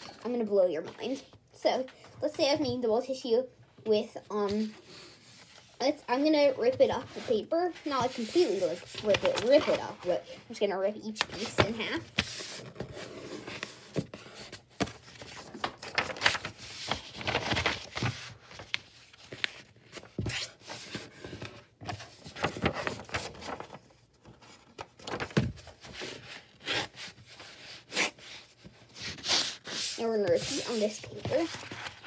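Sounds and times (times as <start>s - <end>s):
paper sheets rustling: 6.4s - 32.0s.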